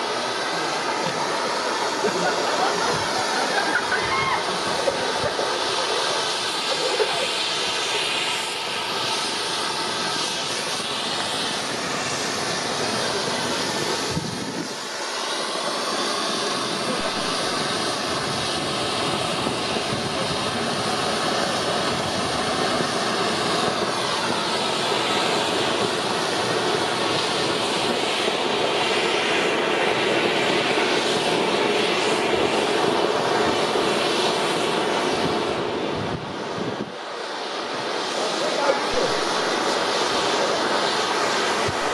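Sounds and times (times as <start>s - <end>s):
firework fountain hissing: 0.0s - 41.9s.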